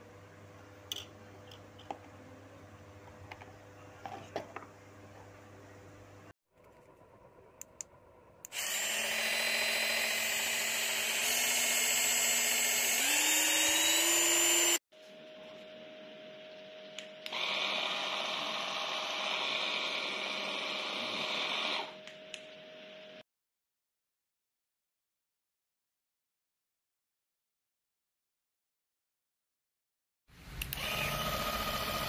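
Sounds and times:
electric hand mixer whining: 8.5 - 14.8, 17.3 - 22.0, 30.8 - 32.0.

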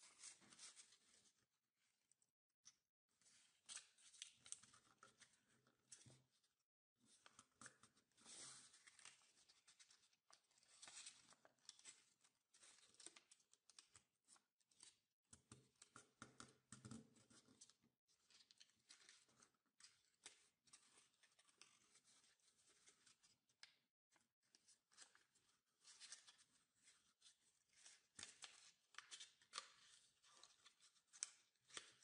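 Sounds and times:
paper rustling and crinkling: 0.0 - 1.2.

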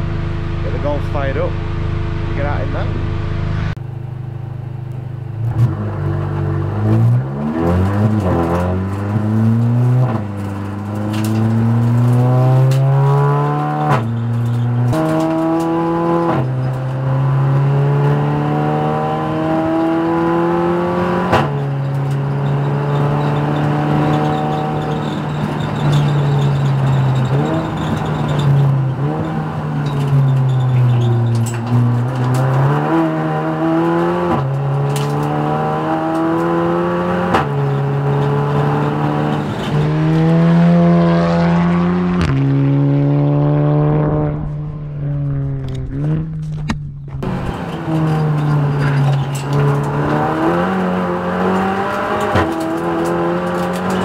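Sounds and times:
race car engine at full throttle: 0.0 - 54.0
race car passing by: 39.7 - 46.3.

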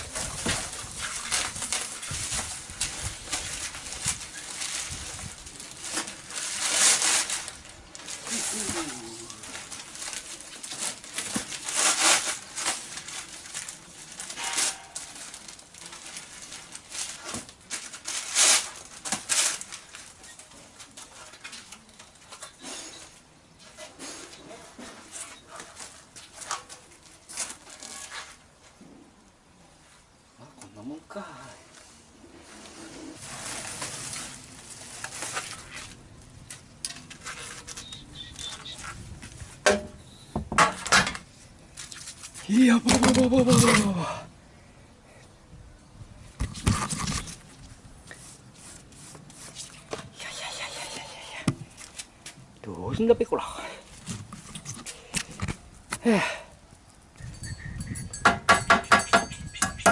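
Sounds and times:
packing paper rustling and crackling: 0.0 - 28.7, 32.4 - 39.6.

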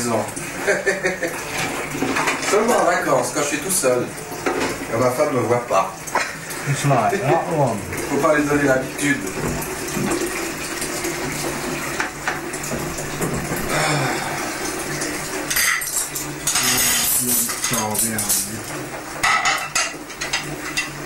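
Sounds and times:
crockery and cutlery clinking: 15.5 - 18.6, 19.2 - 21.0.

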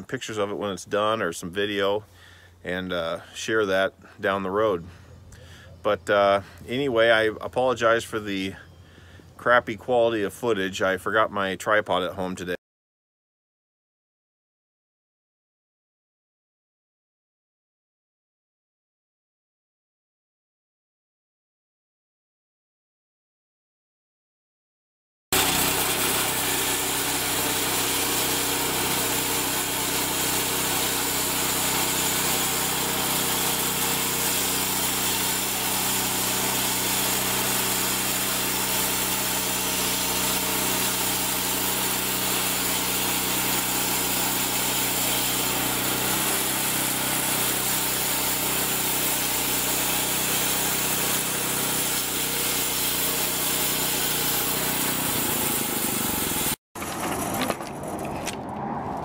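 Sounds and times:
small gasoline engine running: 25.3 - 57.9.

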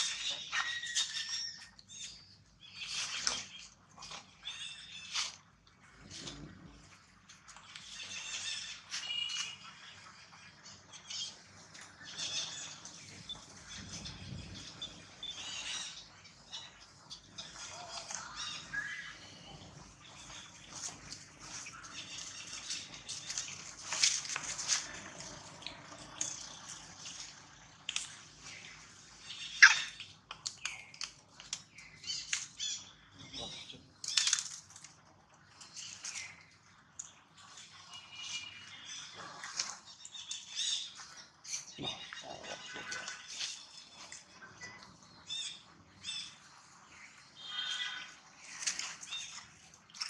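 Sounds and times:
animal chirps and squeaks: 0.0 - 5.4, 7.6 - 25.0, 28.4 - 31.1, 31.8 - 34.6, 37.4 - 46.6
high-pitched chirps and squeaks: 0.0 - 5.4, 7.6 - 10.0, 29.2 - 30.2
dry leaves rustling: 20.2 - 25.5.

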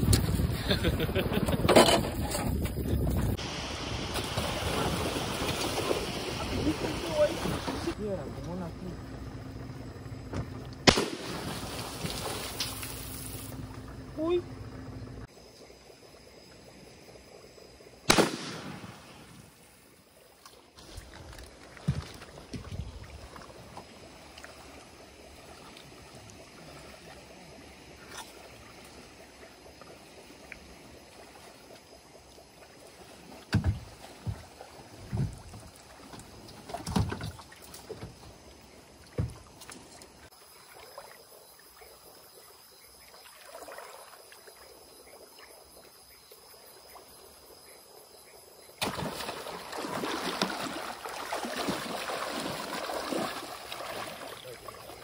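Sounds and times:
night insects chorus: 0.0 - 55.0
rush of water and brush: 3.3 - 8.2, 10.9 - 13.6, 43.0 - 44.7, 48.8 - 55.0.

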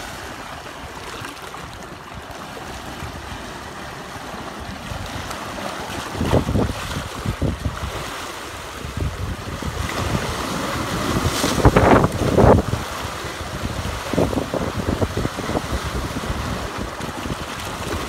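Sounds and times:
surf washing against rocks: 0.0 - 18.0
wind on microphone: 4.3 - 18.0.

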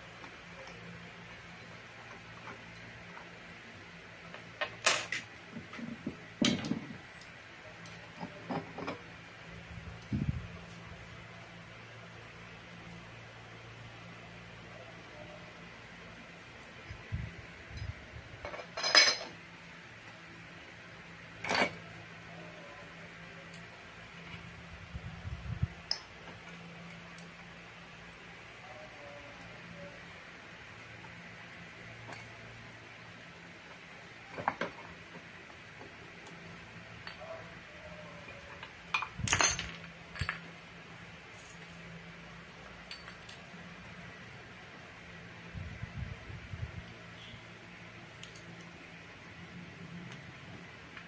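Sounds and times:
metal parts clinking: 18.4 - 19.3, 39.0 - 40.5.

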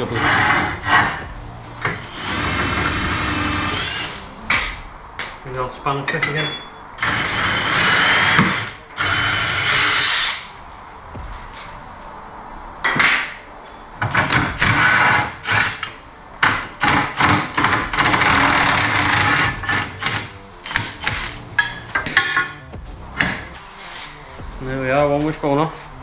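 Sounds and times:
impact wrench hammering: 14.0 - 22.6.

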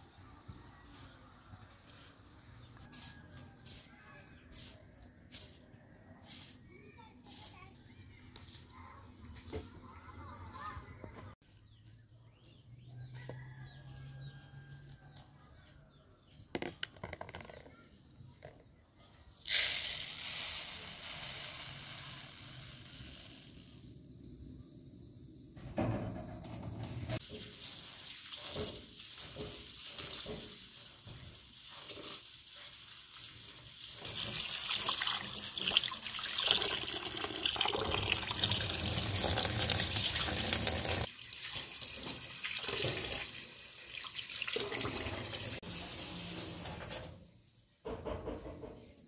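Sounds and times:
water splashing in a bowl: 27.3 - 45.6.

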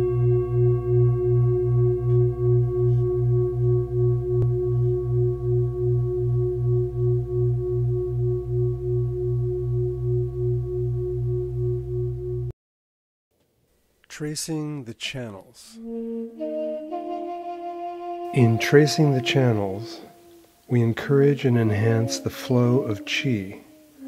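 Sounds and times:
pulsing ringing tone: 0.0 - 12.5.

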